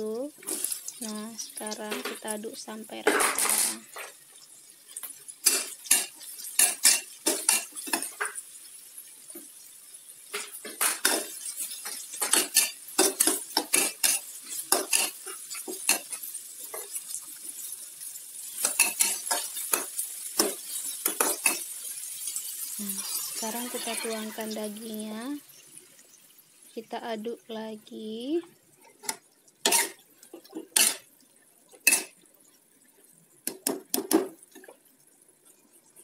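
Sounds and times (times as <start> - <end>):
vegetables sizzling: 0.0 - 36.0
metal spatula scraping a wok: 18.4 - 24.8, 29.6 - 31.1, 31.8 - 32.2.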